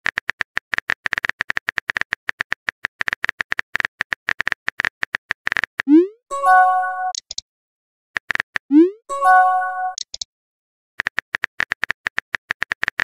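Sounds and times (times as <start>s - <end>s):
message chime: 5.9s - 7.2s, 8.7s - 10.0s
phone keyboard typing clicks: 7.1s - 7.4s, 9.9s - 10.3s.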